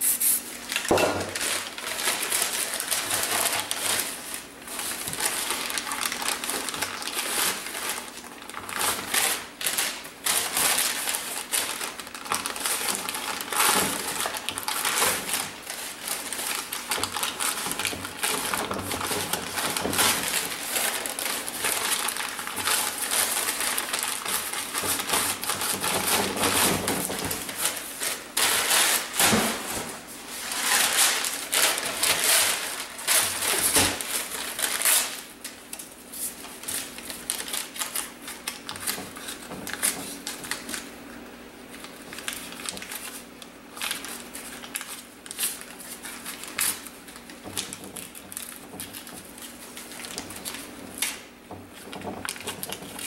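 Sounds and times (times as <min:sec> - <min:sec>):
paper crumpling and tearing: 0:00.0 - 0:40.9, 0:41.7 - 0:51.2
paper crinkles and clicks: 0:00.7 - 0:29.9, 0:30.5 - 0:40.9, 0:41.7 - 0:53.0.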